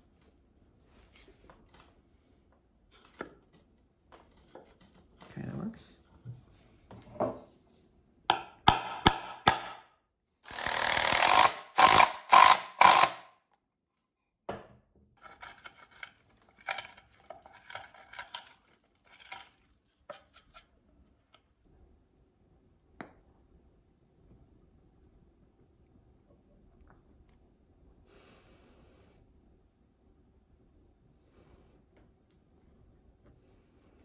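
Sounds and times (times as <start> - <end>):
power drill driving screw into wood: 10.4 - 13.3.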